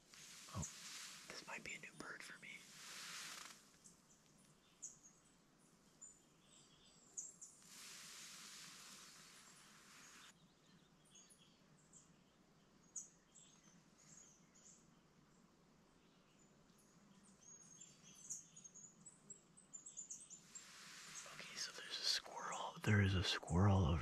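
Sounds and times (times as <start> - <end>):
soft hiss: 0.0 - 4.8, 7.4 - 10.3, 20.4 - 24.0
small birds chirping: 0.0 - 24.0.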